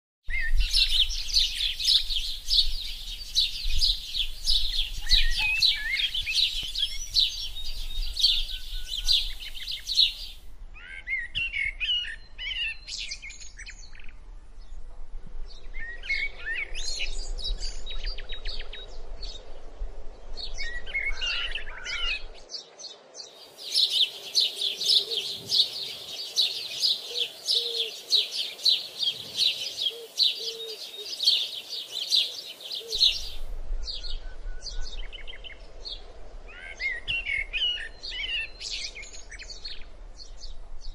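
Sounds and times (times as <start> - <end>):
flock of birds chirping: 0.3 - 14.8, 20.3 - 40.9.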